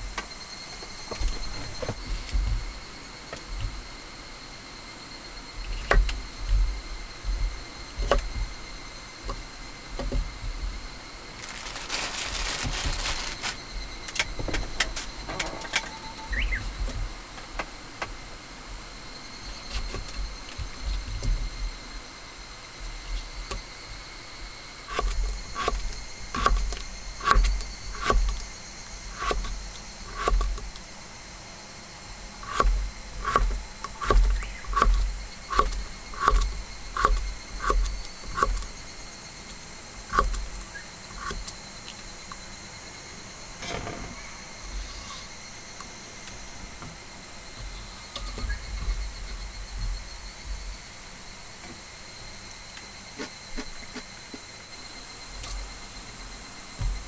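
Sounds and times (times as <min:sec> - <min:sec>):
brief rustling: 0:11.4 - 0:13.6.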